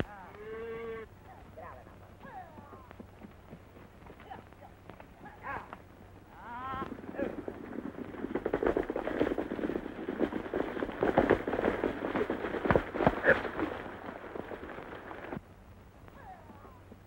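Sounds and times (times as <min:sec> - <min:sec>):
horses galloping hoofbeats: 0:00.0 - 0:17.0.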